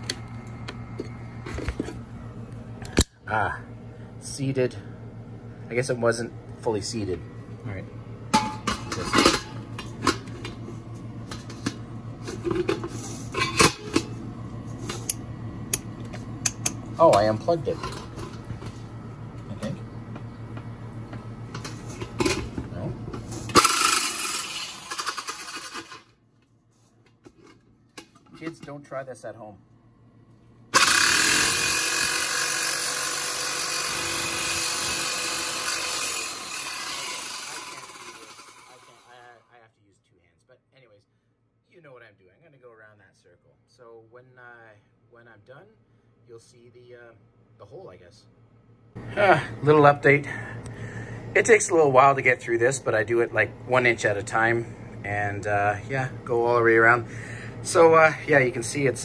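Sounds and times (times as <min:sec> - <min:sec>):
jigsaw cutting metal: 0:23.5 - 0:26.1, 0:30.8 - 0:39.4.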